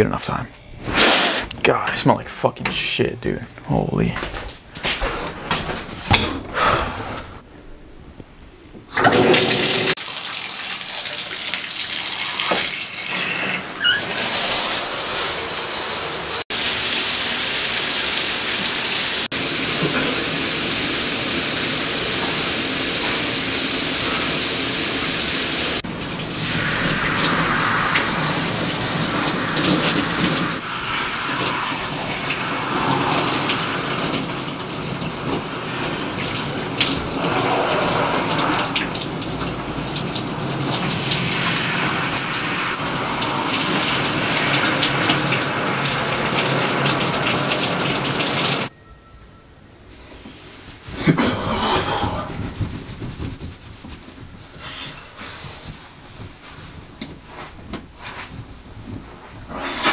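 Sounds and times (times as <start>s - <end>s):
shower running: 8.9s - 48.7s.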